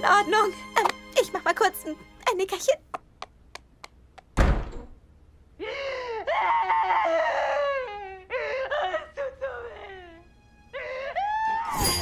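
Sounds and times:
cartoon hoofsteps tapping: 0:00.8 - 0:01.3, 0:02.2 - 0:04.4
door slamming shut: 0:04.4 - 0:05.0.

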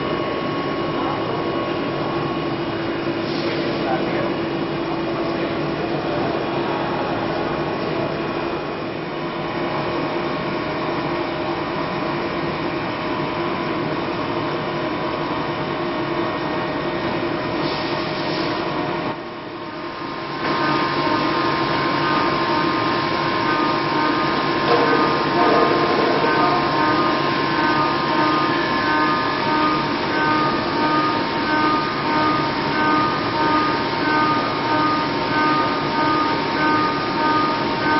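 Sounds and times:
milling spindle whine: 0:20.4 - 0:37.9
metal cutting noise: 0:22.0 - 0:37.9.

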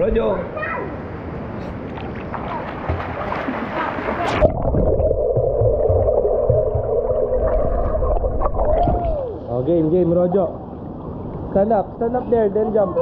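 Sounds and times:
water sloshing and gurgling: 0:01.8 - 0:09.5
sharp splash: 0:02.0 - 0:05.0
low bubbling churn: 0:04.3 - 0:09.4.

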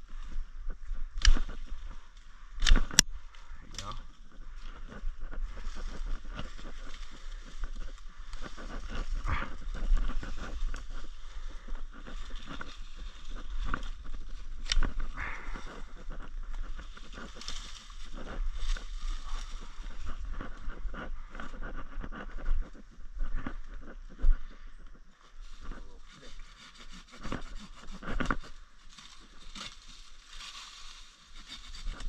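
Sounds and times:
leaves and brush rustling: 0:00.0 - 0:32.0
loppers snipping branches: 0:01.2 - 0:01.7, 0:02.6 - 0:03.1.

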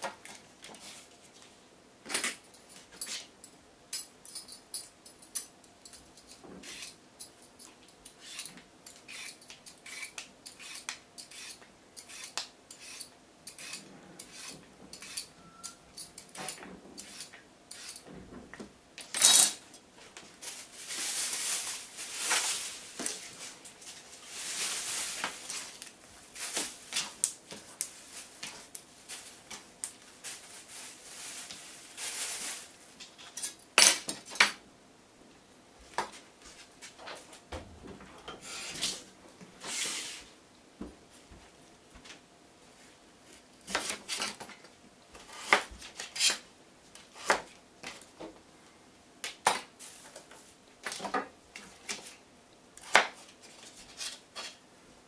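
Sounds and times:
peeler scraping a carrot: 0:06.6 - 0:07.0, 0:08.0 - 0:15.3.

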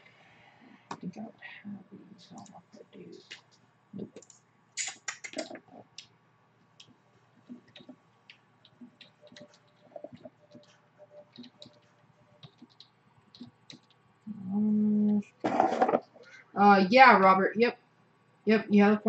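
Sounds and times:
mouse clicking: 0:06.8 - 0:14.0
keyboard typing: 0:07.4 - 0:08.0, 0:08.7 - 0:14.0.

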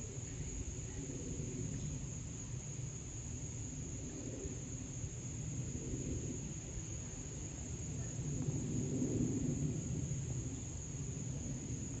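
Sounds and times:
distant jet engine rumble: 0:03.9 - 0:12.0.

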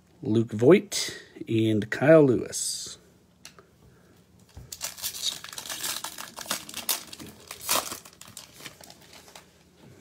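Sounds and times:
foil wrapper tearing and crinkling: 0:04.7 - 0:09.5.

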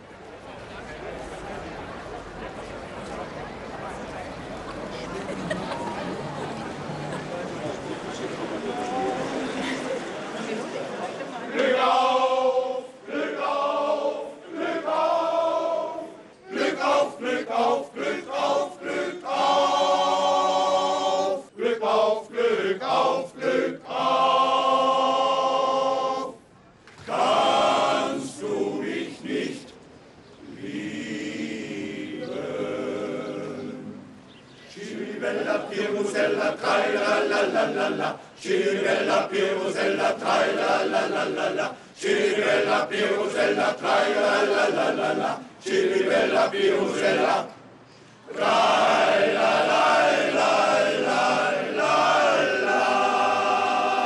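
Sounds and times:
male choir singing: 0:11.2 - 0:26.4, 0:27.0 - 0:29.8, 0:30.4 - 0:34.1, 0:34.7 - 0:47.6, 0:48.3 - 0:54.0.

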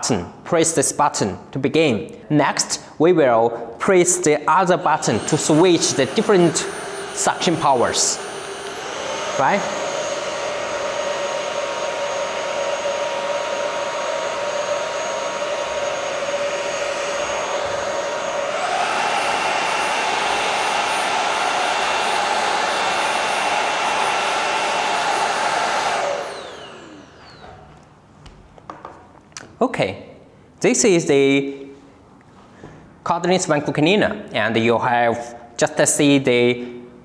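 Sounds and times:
vacuum cleaner motor whine: 0:04.5 - 0:27.8.

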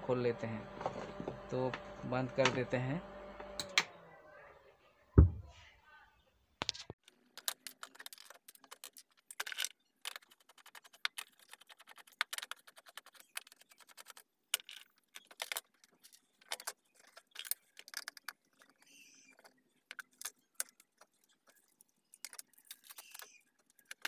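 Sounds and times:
screws rattling: 0:07.0 - 0:24.0
rapid ticks: 0:10.1 - 0:14.2.

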